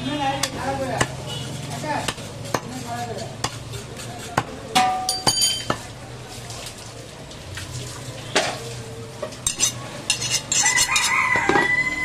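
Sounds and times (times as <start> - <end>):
cleaver chopping meat: 0.4 - 1.3, 1.9 - 4.8.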